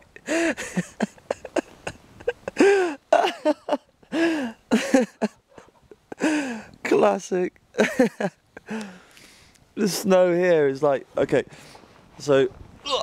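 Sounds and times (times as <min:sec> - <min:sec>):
person laughing: 0:00.0 - 0:06.4, 0:07.8 - 0:08.8.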